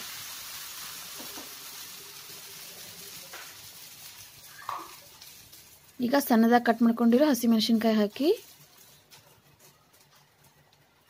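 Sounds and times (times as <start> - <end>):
batter sizzling on hot griddle: 0.0 - 11.0.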